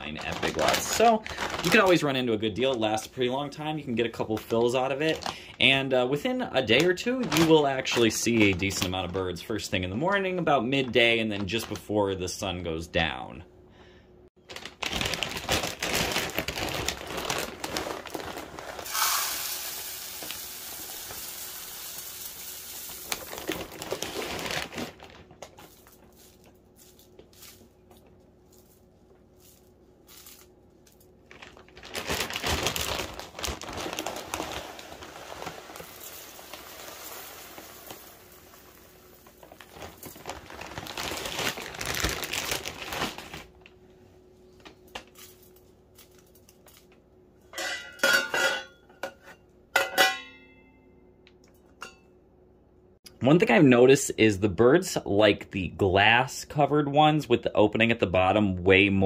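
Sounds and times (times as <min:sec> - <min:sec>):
seed pouring and rustling: 0:00.0 - 0:03.0, 0:14.8 - 0:27.8, 0:28.4 - 0:43.4
plastic bag crinkling: 0:00.0 - 0:05.9, 0:06.6 - 0:10.2, 0:10.8 - 0:12.0, 0:14.4 - 0:43.7.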